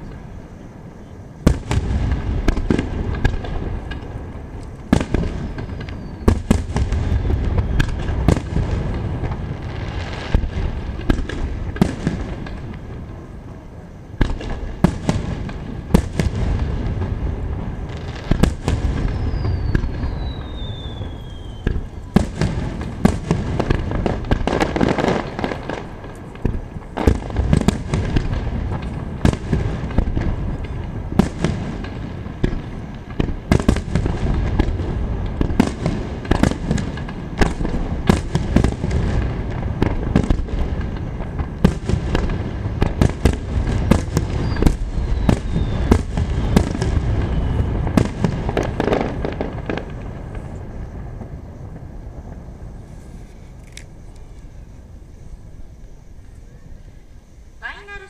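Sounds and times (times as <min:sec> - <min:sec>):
falling firework whistle: 0:04.9 - 0:12.6, 0:14.2 - 0:58.0
firework shells bursting: 0:14.2 - 0:54.8.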